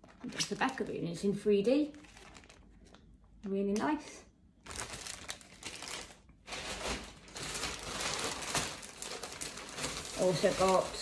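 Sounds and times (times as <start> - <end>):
plastic bag rustling: 1.8 - 3.1, 4.6 - 11.0.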